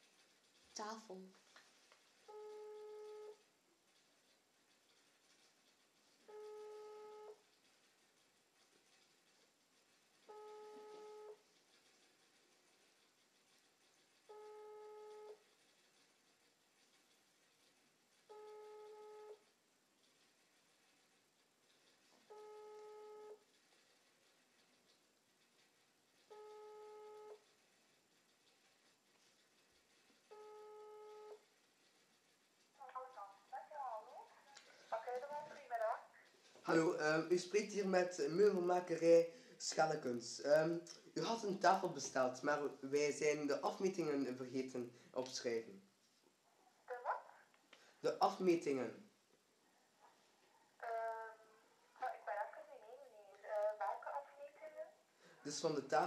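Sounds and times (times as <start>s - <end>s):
phone ringback tone: 2.3s - 3.4s, 6.3s - 7.4s, 10.3s - 11.4s, 14.3s - 15.4s, 18.3s - 19.4s, 22.3s - 23.4s, 26.3s - 27.4s, 30.3s - 31.4s.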